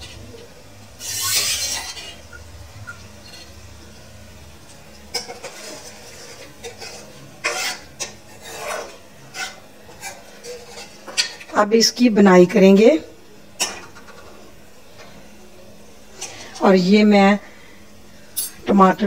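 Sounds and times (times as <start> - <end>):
ladle scraping metal pan: 1.0 - 2.2, 5.1 - 11.4.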